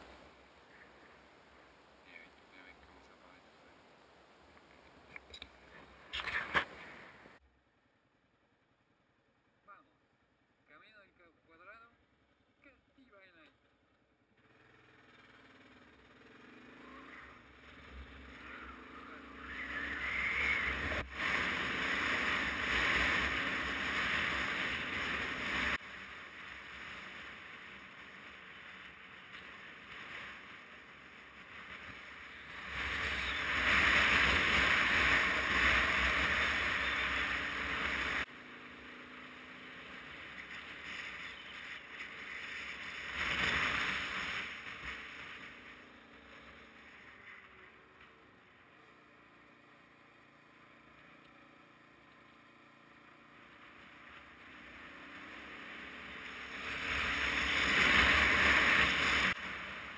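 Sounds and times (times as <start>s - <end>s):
motorcycle engine: 13.6s - 59.9s.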